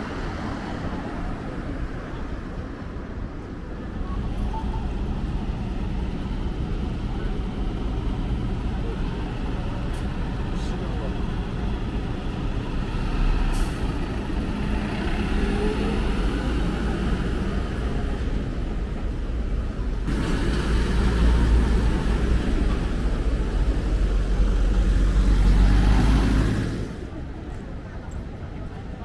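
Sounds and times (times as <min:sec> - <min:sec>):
truck engine driving off: 0:19.9 - 0:27.1
car passing close by: 0:24.1 - 0:27.1.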